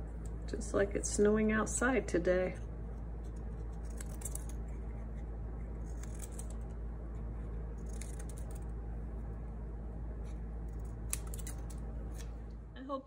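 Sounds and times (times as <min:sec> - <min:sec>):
steady low hum: 0:00.0 - 0:13.0
scissors snipping paper: 0:03.2 - 0:06.7, 0:07.8 - 0:08.7, 0:10.2 - 0:12.3.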